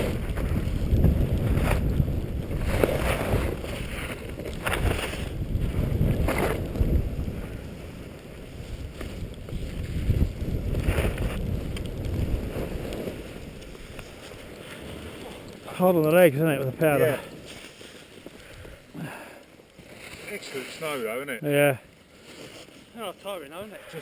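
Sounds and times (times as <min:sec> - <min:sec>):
wind rushing on microphone: 0:00.0 - 0:17.4
skis hissing through snow: 0:07.6 - 0:15.7, 0:16.8 - 0:18.8, 0:19.8 - 0:24.0.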